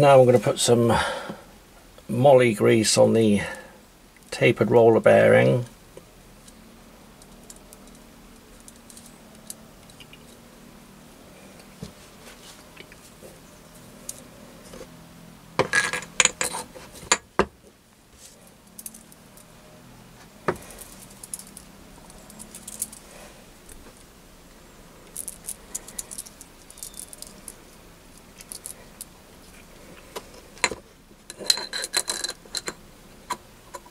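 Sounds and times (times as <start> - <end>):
metallic clinks of steel parts: 20.6 - 23.0, 25.1 - 27.6.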